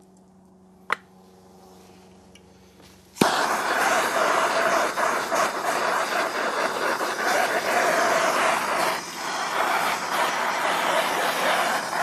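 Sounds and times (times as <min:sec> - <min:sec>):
gas torch roaring hiss: 0:02.7 - 0:12.0.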